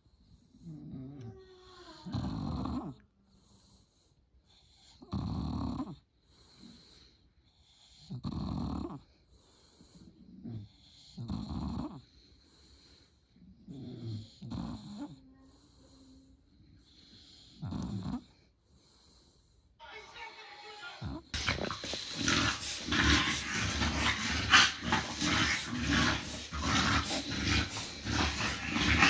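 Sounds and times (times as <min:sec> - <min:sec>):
dog snoring: 0:00.0 - 0:19.6, 0:21.0 - 0:29.0.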